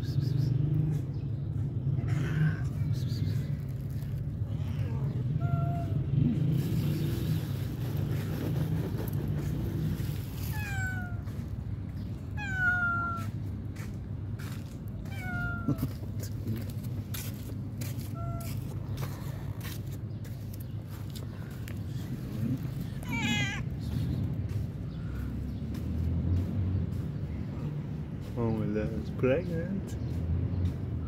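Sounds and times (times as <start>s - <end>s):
cat meowing: 4.5s - 6.1s, 10.4s - 11.4s, 12.2s - 13.4s, 15.0s - 16.0s, 18.1s - 18.6s, 22.9s - 23.7s.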